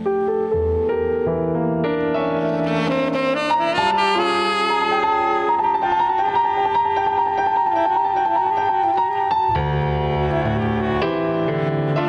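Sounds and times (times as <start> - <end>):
keyboard chord: 0.0 - 7.2
saxophone high note: 2.6 - 6.0.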